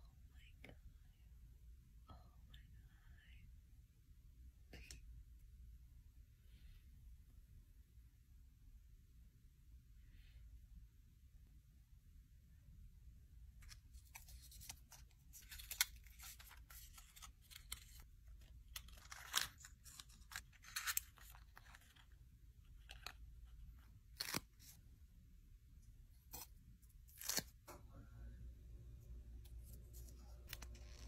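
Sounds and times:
packaging rustles: 13.6s - 22.2s.

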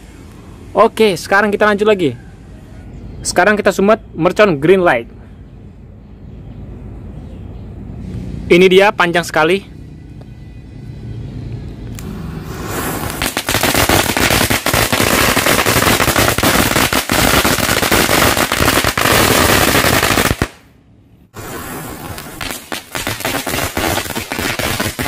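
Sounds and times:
firecracker string crackling: 11.9s - 20.7s, 21.3s - 25.0s.

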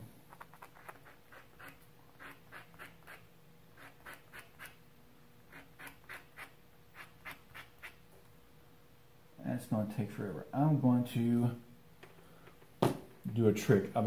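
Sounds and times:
wooden dowel scratching on sandpaper: 0.4s - 3.2s, 3.8s - 4.8s, 5.5s - 8.0s.

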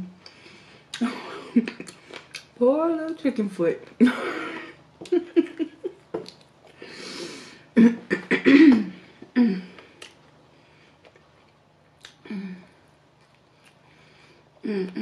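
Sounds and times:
woman laughing: 1.0s - 2.0s, 4.0s - 6.0s.

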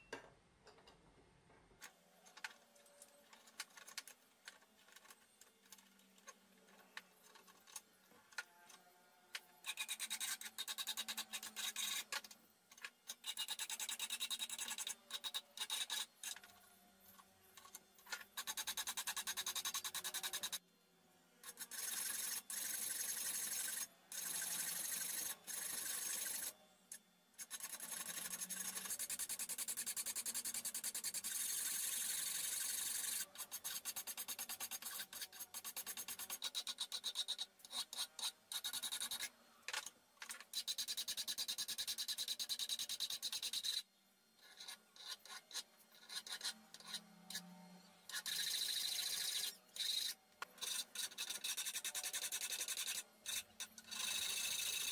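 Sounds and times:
file rasping on steel: 9.6s - 12.2s, 13.1s - 16.4s, 18.1s - 20.6s, 21.4s - 26.5s, 27.4s - 39.3s, 40.5s - 43.8s, 44.4s - 54.9s.

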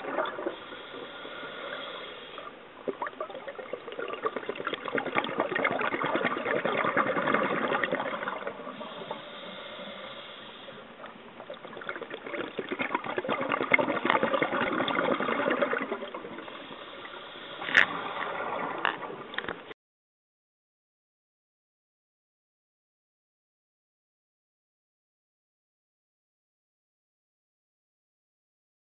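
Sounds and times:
exhaled bubbles: 0.0s - 19.7s
diver breathing through regulator: 0.5s - 2.6s, 8.7s - 11.0s, 16.4s - 18.6s.

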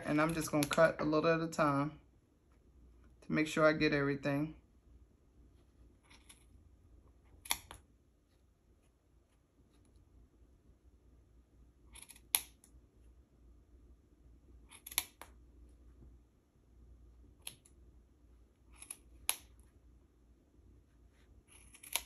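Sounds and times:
scissors cutting yarn: 0.0s - 0.9s, 6.0s - 6.6s, 7.3s - 7.9s, 11.8s - 12.8s, 14.6s - 15.4s, 17.3s - 17.8s, 18.6s - 19.7s, 21.4s - 22.0s.

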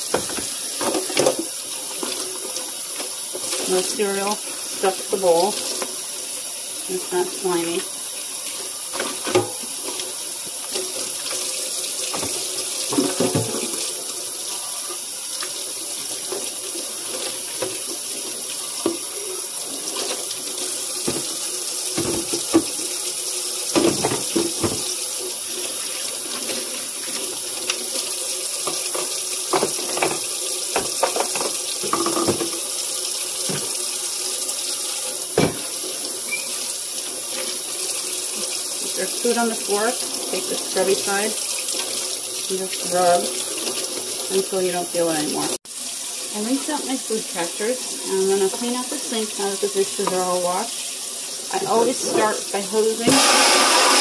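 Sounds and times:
faucet running into sink: 0.0s - 54.0s
dishes clattering: 12.1s - 13.8s, 29.0s - 32.6s, 35.4s - 35.7s.

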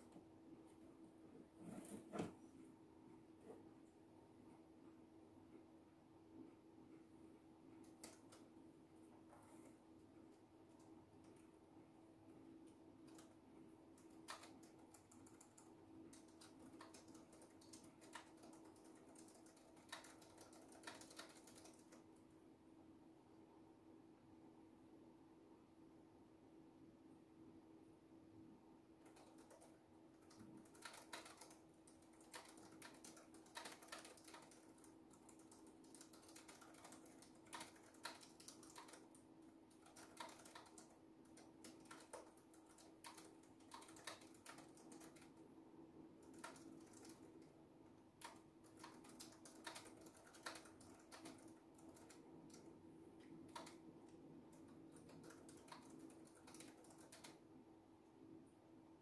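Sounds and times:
faint steady hum: 0.0s - 59.0s
typing on a keyboard: 7.8s - 8.6s, 13.0s - 22.2s, 29.0s - 45.5s, 46.2s - 47.5s, 48.2s - 57.4s.

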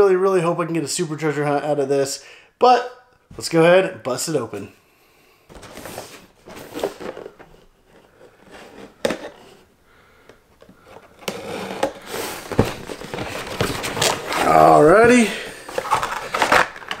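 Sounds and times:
cardboard scraping and rustling: 5.5s - 9.7s, 10.6s - 17.0s.

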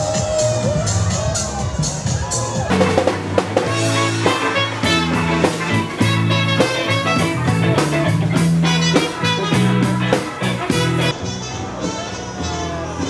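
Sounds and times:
steady drum beat: 0.0s - 11.1s
live rock band playing: 2.6s - 13.0s.

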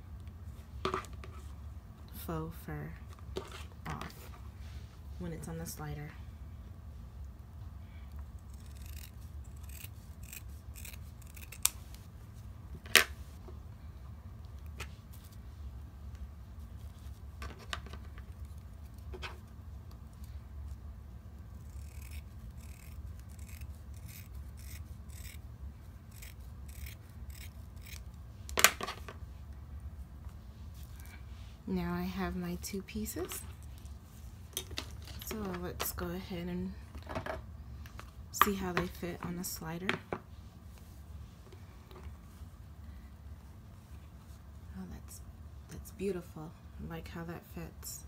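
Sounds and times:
scissors snipping fabric: 8.4s - 11.8s, 21.6s - 25.4s, 26.1s - 28.0s.

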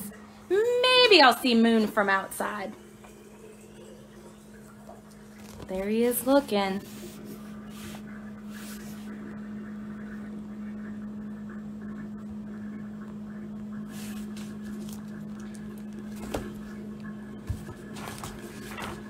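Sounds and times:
steady hum: 0.0s - 19.0s
book pages rustling: 6.8s - 9.1s, 13.9s - 16.7s, 17.4s - 19.0s.

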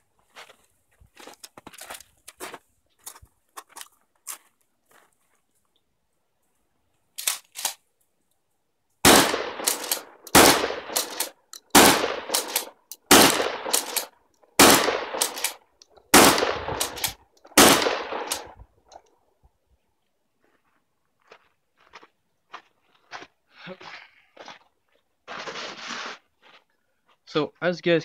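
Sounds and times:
shotgun shots: 9.0s - 18.6s
shotgun pump clacking: 9.6s - 13.0s, 13.7s - 14.1s, 15.2s - 16.0s, 16.8s - 17.2s.

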